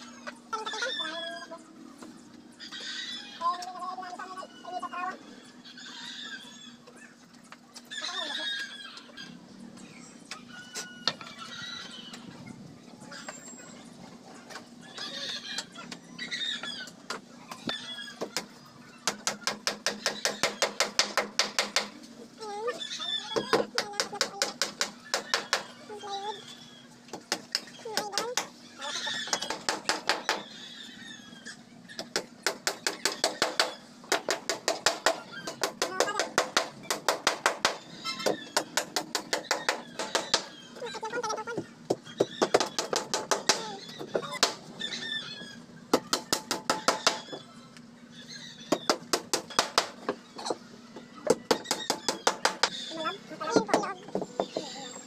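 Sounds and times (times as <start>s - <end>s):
chickens clucking: 0.0s - 55.0s
hammer striking nails into wood: 19.1s - 21.9s.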